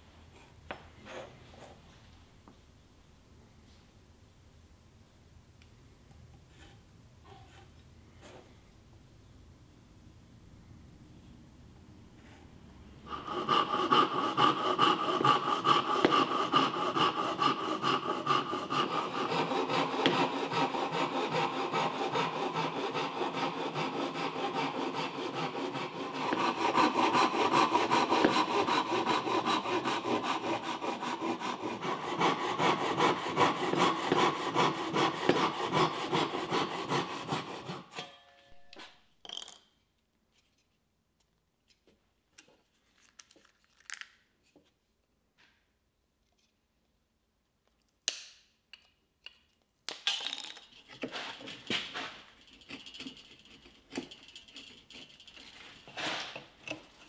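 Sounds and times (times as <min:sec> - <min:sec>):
hand saw cutting wood: 0:13.0 - 0:38.2, 0:51.0 - 0:57.0.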